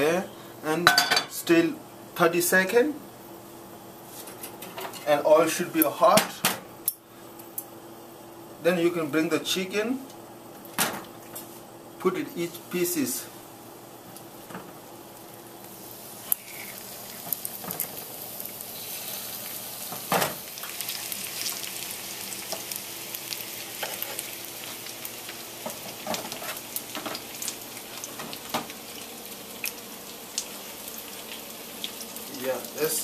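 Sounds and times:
chicken sizzling in hot oil: 0:15.1 - 0:33.0.

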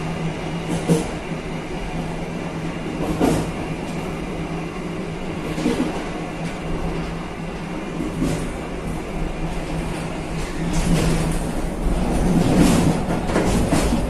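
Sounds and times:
train rumbling on track: 0:00.0 - 0:14.0
faint knocks from train wheels: 0:00.6 - 0:01.2, 0:03.0 - 0:04.0, 0:10.0 - 0:14.0.

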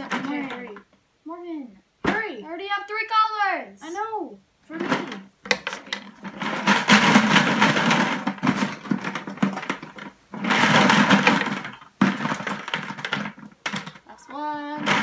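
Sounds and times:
markers rattling in plastic bucket: 0:00.0 - 0:00.9, 0:04.7 - 0:15.0.

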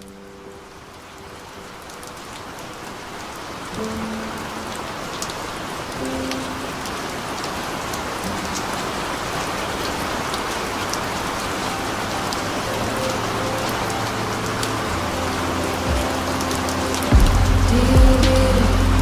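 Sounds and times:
steady rain patter: 0:00.0 - 0:19.0
muffled low music notes: 0:11.9 - 0:19.0.

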